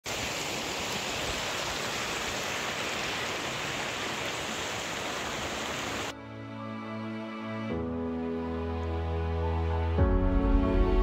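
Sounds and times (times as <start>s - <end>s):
running water rushing: 0.0s - 6.2s.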